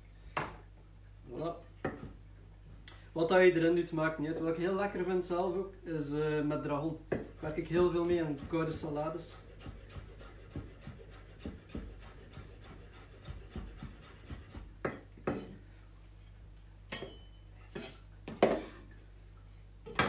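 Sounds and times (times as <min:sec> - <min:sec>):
knife chopping herbs on board: 0:07.1 - 0:15.6.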